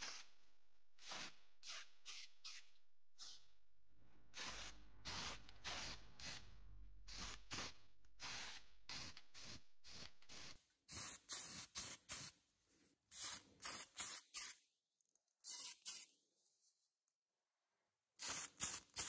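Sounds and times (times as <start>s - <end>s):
spray paint hissing bursts: 4.4s - 6.4s, 7.1s - 12.4s, 13.1s - 14.6s, 15.4s - 16.1s, 18.2s - 19.0s.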